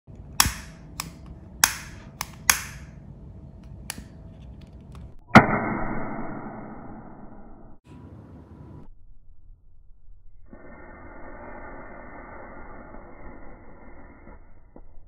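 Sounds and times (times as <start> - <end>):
gas lighter igniter clicking: 0.4 - 3.0, 3.8 - 4.1
lighter catching with snap: 0.4 - 3.0
hiss of lighter flame: 10.5 - 14.8.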